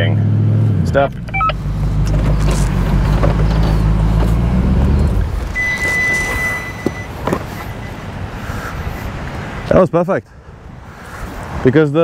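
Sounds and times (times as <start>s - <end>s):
car engine revving under load: 0.0s - 9.7s
high electronic beep: 1.3s - 1.6s, 5.0s - 8.2s.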